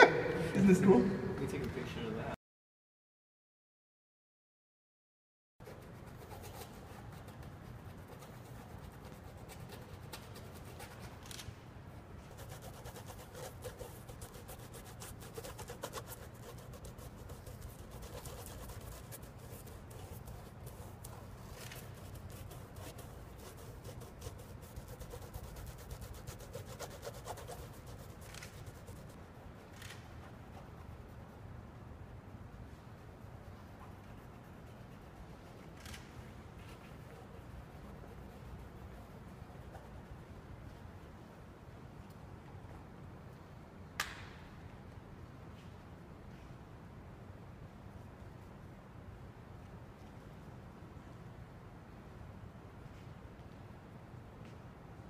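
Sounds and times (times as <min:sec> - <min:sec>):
low room hum: 0:00.0 - 0:02.4, 0:05.6 - 0:55.0
hands rubbing on canvas: 0:12.3 - 0:29.2.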